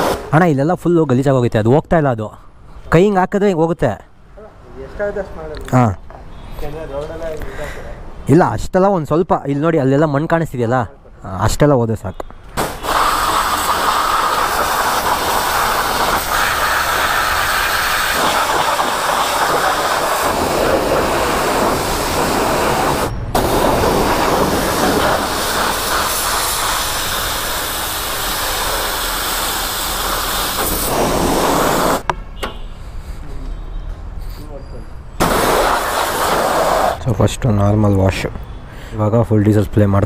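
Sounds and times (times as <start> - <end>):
pressure washer spraying water: 0.0 - 0.3, 12.6 - 32.0, 35.2 - 37.0.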